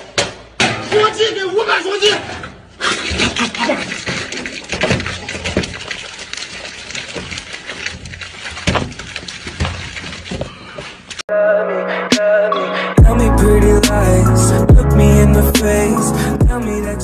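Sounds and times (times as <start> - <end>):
wet squelching and slurping: 2.8 - 11.2
juice spattering on metal tray: 3.1 - 10.5.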